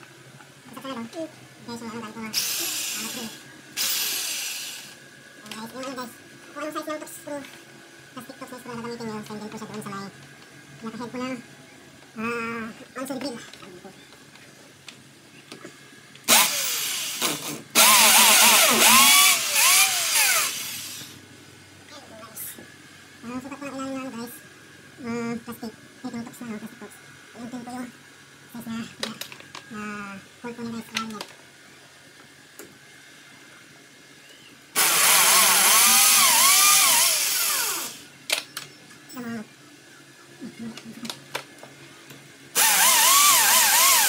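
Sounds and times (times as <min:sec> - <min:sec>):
electric drill boring into wall: 0:02.4 - 0:05.0, 0:16.3 - 0:21.2, 0:34.8 - 0:38.1, 0:42.6 - 0:44.0.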